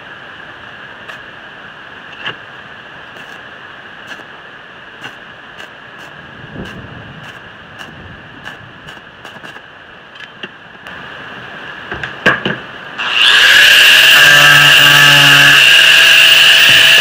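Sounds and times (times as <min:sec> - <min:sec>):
arc welding crackling hiss: 0:01.0 - 0:01.3, 0:03.1 - 0:09.7, 0:13.1 - 0:17.0
angle grinder whining: 0:13.0 - 0:17.0.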